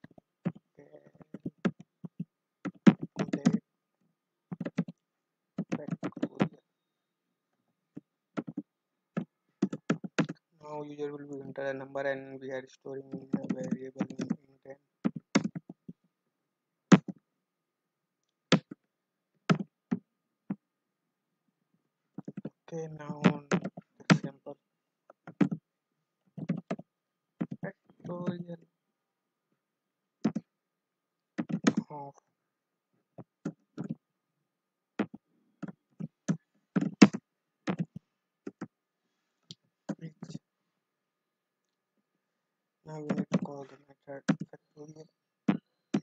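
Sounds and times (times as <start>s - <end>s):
keyboard typing: 0.0s - 3.6s, 4.5s - 5.0s, 5.6s - 6.6s, 8.4s - 8.6s, 9.2s - 10.4s, 13.1s - 14.4s, 15.0s - 16.0s, 19.5s - 20.0s, 22.2s - 24.3s, 26.4s - 26.8s, 27.4s - 28.4s, 30.2s - 30.5s, 31.4s - 31.9s, 33.4s - 34.0s, 35.0s - 38.7s
keyboard keystrokes: 2.7s - 3.6s, 13.1s - 14.4s.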